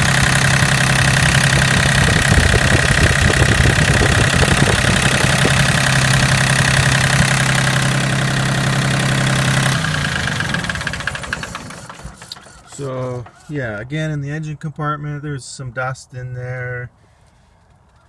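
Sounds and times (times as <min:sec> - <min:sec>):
diesel tractor engine idling: 0:00.0 - 0:13.8.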